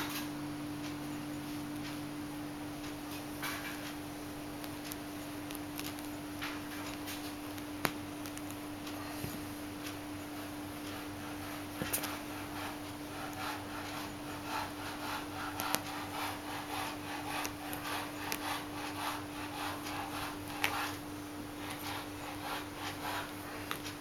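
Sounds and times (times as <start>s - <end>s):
steady low hum: 0.0s - 24.0s
kitten claws scratching fabric: 4.6s - 7.4s, 10.4s - 21.0s, 21.6s - 24.0s.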